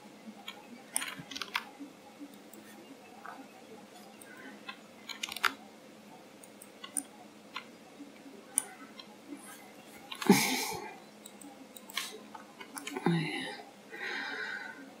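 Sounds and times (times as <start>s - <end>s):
keyboard and mouse clicks: 0.4s - 1.7s, 4.0s - 5.6s, 6.4s - 7.7s, 8.5s - 9.1s, 10.1s - 10.3s, 11.2s - 13.0s.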